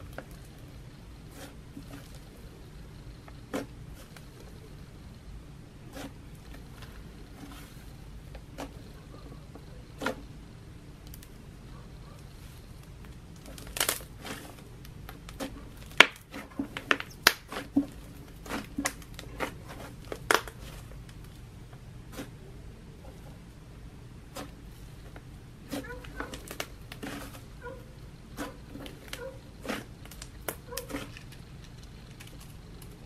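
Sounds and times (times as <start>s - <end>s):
slime popping and crackling: 12.8s - 21.4s.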